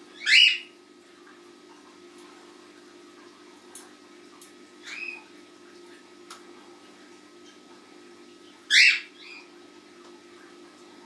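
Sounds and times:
cockatiels calling: 0.2s - 0.7s, 4.8s - 5.2s, 8.7s - 9.5s.

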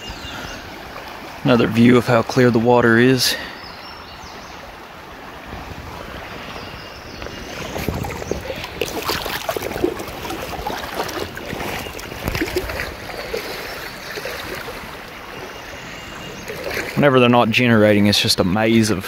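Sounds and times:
river current rushing: 0.0s - 18.8s
water splashing around legs: 7.2s - 17.4s.

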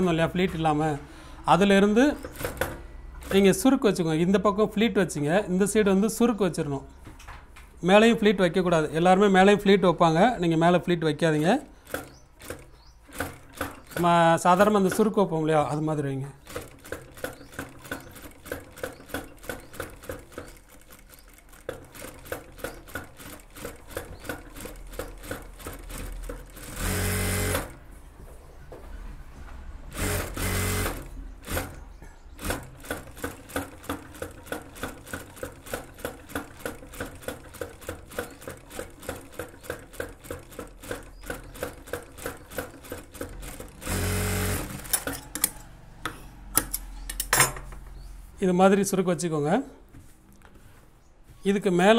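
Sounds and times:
sewing machine stitching: 1.8s - 3.8s, 11.4s - 15.3s, 16.4s - 27.8s, 29.9s - 31.8s, 32.4s - 45.7s
fast sewing machine runs: 16.4s - 27.8s, 29.9s - 31.7s, 32.4s - 45.1s.

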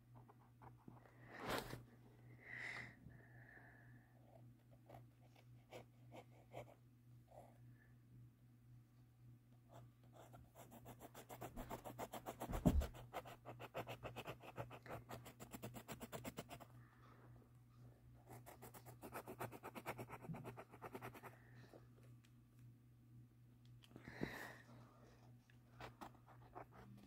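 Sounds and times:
pencil scribbling on paper: 10.2s - 16.6s, 18.3s - 21.3s
thump: 12.5s - 13.0s.

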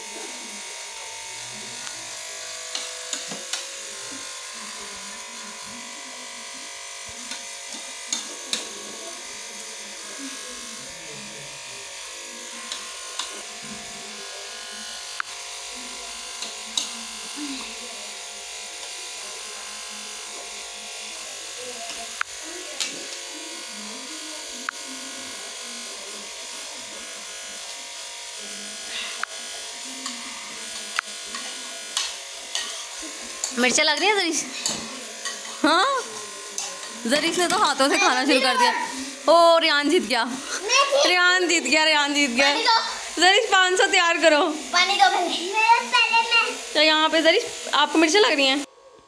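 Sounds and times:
steady electrical buzz: 0.0s - 48.8s
faint voices: 0.0s - 49.0s.

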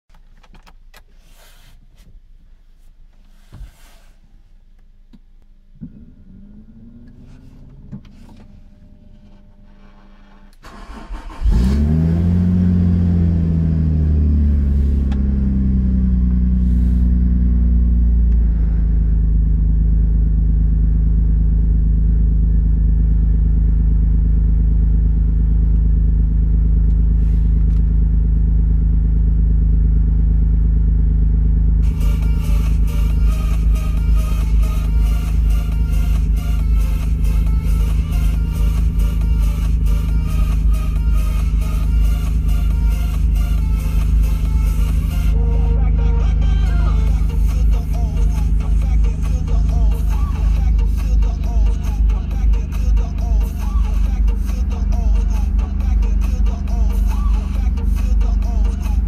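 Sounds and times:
car engine revving and idling: 4.8s - 59.0s
starter motor cranking: 10.4s - 12.1s.

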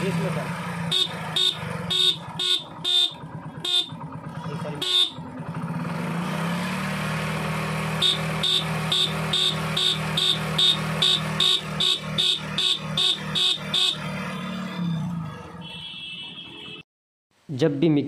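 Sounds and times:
motorcycle idling: 0.0s - 14.2s.

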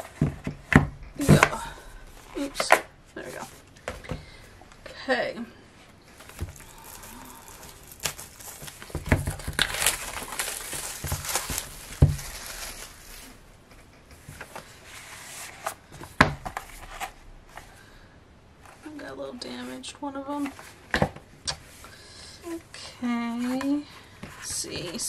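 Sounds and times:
plastic wrap tearing and crinkling: 6.2s - 13.6s
album knocking on table: 12.0s - 12.3s.

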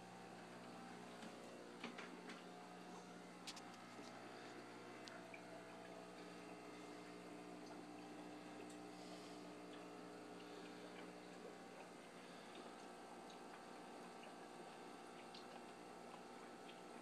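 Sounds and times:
aquarium pumps humming: 0.0s - 17.0s
faint ticks: 3.5s - 11.2s.

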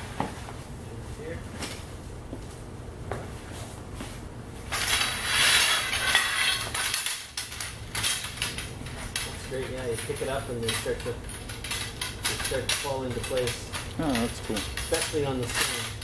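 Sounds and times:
metal poles clattering and clinking: 4.7s - 16.0s.

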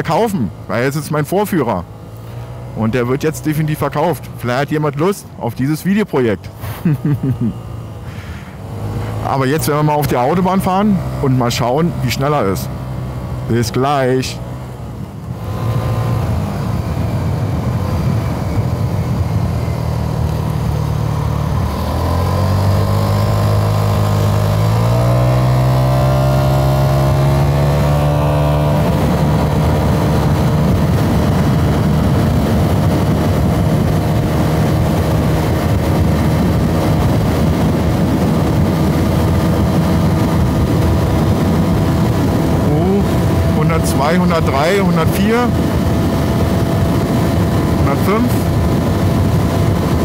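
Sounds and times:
scooter engine at full throttle: 0.0s - 5.4s, 6.2s - 50.0s
wind and road noise: 0.0s - 50.0s.

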